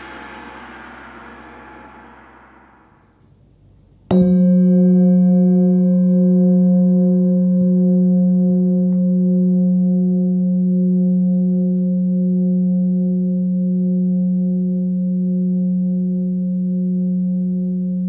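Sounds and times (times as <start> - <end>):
singing bowl ringing: 4.1 - 18.0.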